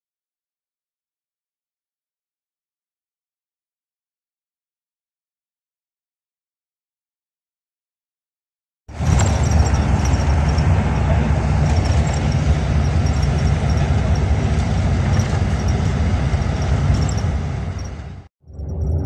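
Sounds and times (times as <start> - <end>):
bus engine and tyres rumbling: 8.9 - 19.0
road noise hiss: 9.0 - 18.3.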